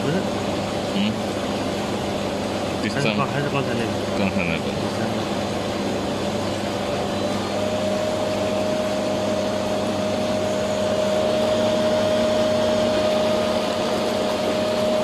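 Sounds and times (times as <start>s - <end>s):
spa jet blower whine: 0.0s - 15.0s.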